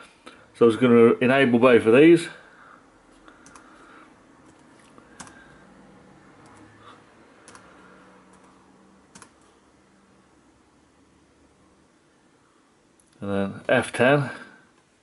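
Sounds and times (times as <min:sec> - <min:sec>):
laptop key presses: 0:03.4 - 0:03.7, 0:04.5 - 0:05.4, 0:07.4 - 0:07.7, 0:09.1 - 0:09.5.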